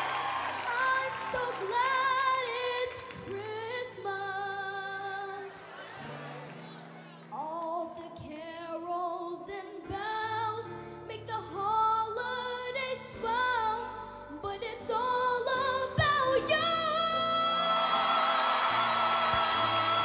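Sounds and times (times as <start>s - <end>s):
audience clapping and cheering: 0.0s - 3.4s, 17.5s - 20.0s
girl singing: 0.7s - 5.7s, 7.3s - 20.0s
backing music: 14.9s - 20.0s.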